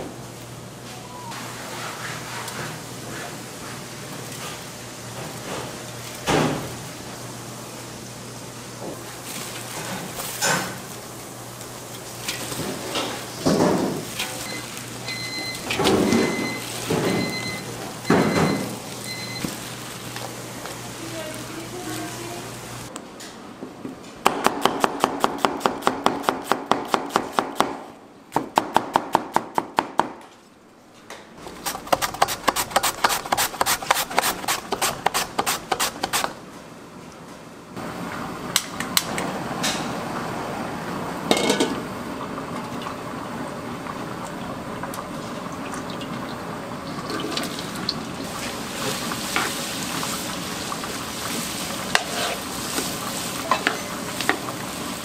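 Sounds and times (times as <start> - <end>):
vegetables sizzling in wok: 1.5 - 22.9, 46.4 - 55.0
wooden spatula stirring: 31.5 - 36.4
gas burner hissing: 47.6 - 55.0.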